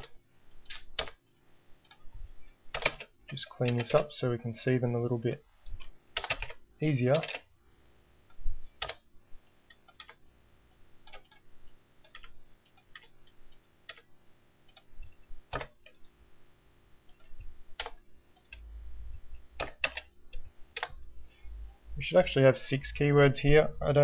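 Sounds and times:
computer mouse and keyboard clicks: 0.0s - 1.2s, 2.7s - 4.0s, 5.7s - 6.6s, 7.2s - 7.4s, 8.6s - 9.0s, 9.7s - 10.2s, 11.0s - 11.4s, 12.0s - 14.1s, 14.7s - 16.1s, 17.1s - 18.6s, 19.6s - 21.0s.

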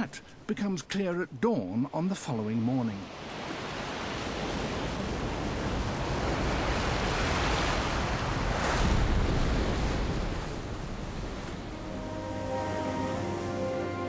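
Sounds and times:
waves breaking on a beach: 0.0s - 14.0s.

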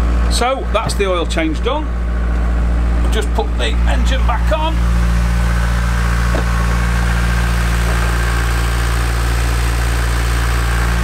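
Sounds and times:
marine diesel engine idling: 0.0s - 11.0s.

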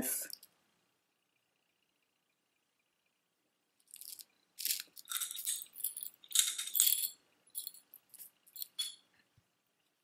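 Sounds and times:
beads rattling and clicking: 3.8s - 9.0s.

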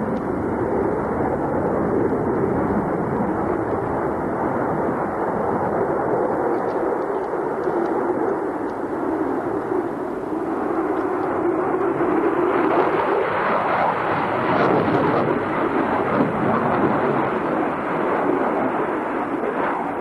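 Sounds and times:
jet engine roar: 0.0s - 20.0s.

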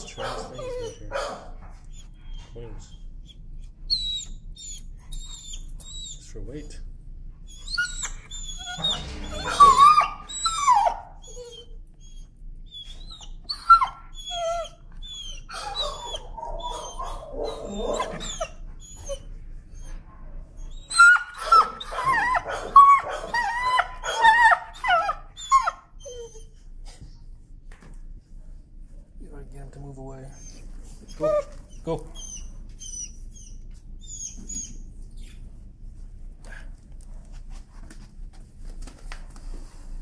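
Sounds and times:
dog screaming and whining: 0.0s - 3.1s, 3.9s - 6.2s, 7.5s - 19.9s, 20.6s - 26.5s, 30.3s - 35.4s.

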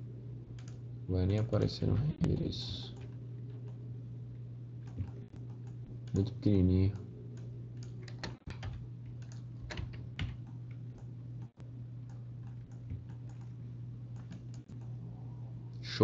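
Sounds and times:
steady low hum: 0.0s - 16.0s
computer keys clicking: 0.5s - 0.8s, 4.8s - 6.2s, 6.9s - 15.0s
mouse clicking: 12.0s - 13.5s, 14.1s - 15.0s.

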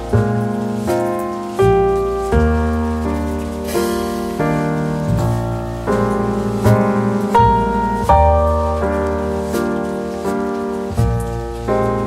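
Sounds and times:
piano chords: 0.0s - 12.0s.

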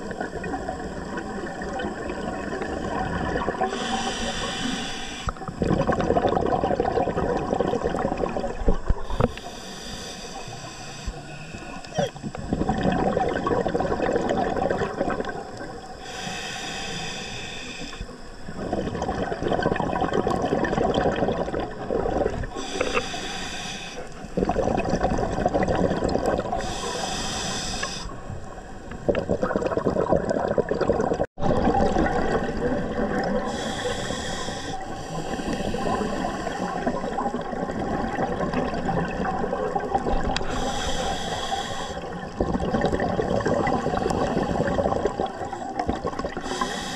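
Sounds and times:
exhaled bubbles gurgling: 0.0s - 46.9s
regulator inhalation hisses: 3.6s - 5.5s, 9.0s - 12.0s, 15.9s - 18.6s, 22.5s - 24.4s, 26.6s - 28.6s, 33.4s - 37.1s, 40.4s - 42.3s, 46.4s - 46.9s.

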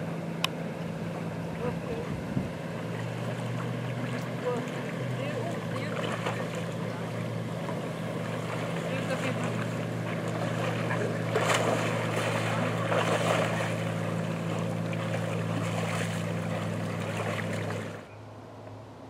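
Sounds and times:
water splashing: 0.0s - 18.1s
steady low hum: 0.0s - 19.0s
wind on microphone: 1.6s - 2.7s.

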